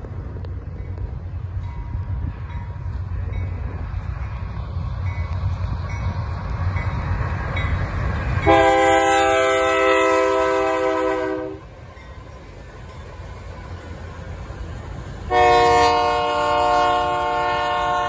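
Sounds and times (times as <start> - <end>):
locomotive rumbling: 0.0 - 18.0
locomotive air horn blast: 8.4 - 11.7, 15.3 - 18.0.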